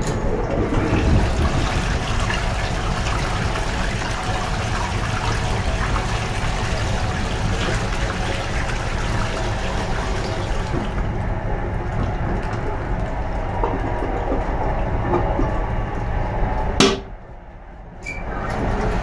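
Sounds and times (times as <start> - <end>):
train rumbling: 0.0 - 4.4
toilet flushing: 0.0 - 17.2, 18.1 - 19.0
water trickling into toilet bowl: 0.6 - 15.9
toilet lid shutting: 16.8 - 17.2.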